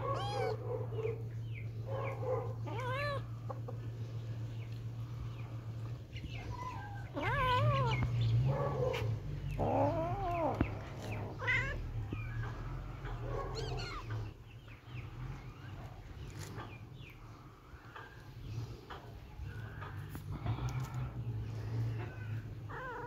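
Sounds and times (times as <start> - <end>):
kittens meowing: 0.0 - 0.6, 2.6 - 3.8, 6.3 - 14.4, 22.0 - 23.0
low steady hum: 0.0 - 23.0.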